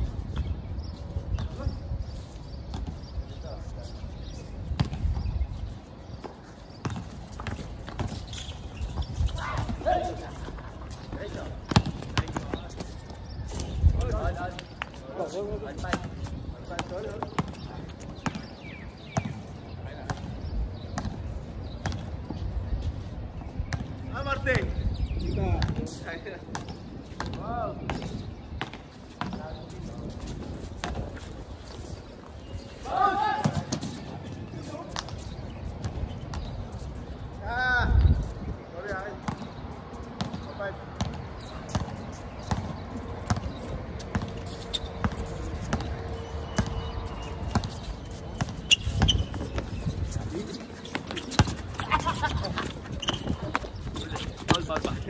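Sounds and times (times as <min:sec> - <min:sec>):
basketball bouncing on court: 0:04.7 - 0:05.1, 0:06.8 - 0:08.2, 0:11.7 - 0:12.6, 0:19.1 - 0:22.1, 0:25.6 - 0:25.9, 0:40.2 - 0:46.9, 0:47.5 - 0:49.7, 0:50.8 - 0:55.0.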